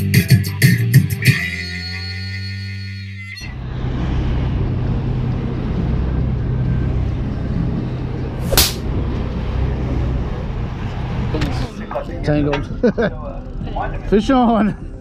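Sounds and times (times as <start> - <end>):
boat engine humming: 3.4 - 15.0
sharp crack: 8.4 - 8.9.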